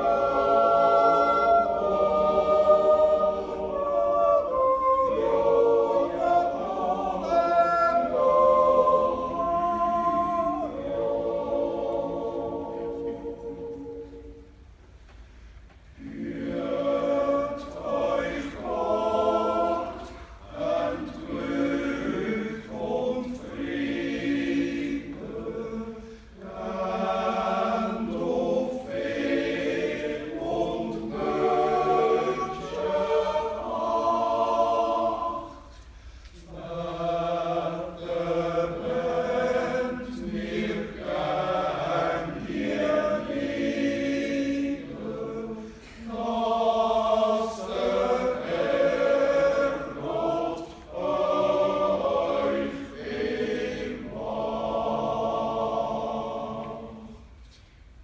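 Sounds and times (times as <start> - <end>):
men's choir yodelling a cappella: 0.0 - 14.3, 16.0 - 35.7, 36.4 - 57.2
singers breathing: 20.0 - 20.4, 25.9 - 26.4, 35.5 - 36.5, 45.5 - 46.1, 50.6 - 50.9.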